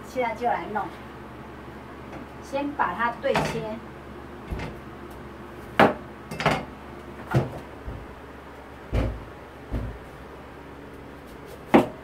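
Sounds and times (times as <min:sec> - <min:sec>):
cleaver knocking on cutting board: 0:08.9 - 0:10.0, 0:11.7 - 0:12.0.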